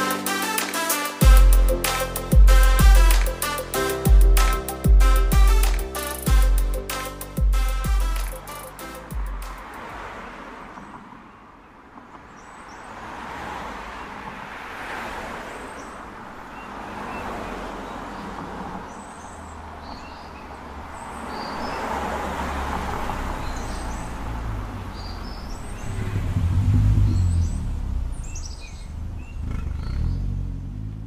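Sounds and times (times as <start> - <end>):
road traffic passing: 0.0 - 31.0
deep rumble: 25.8 - 30.8.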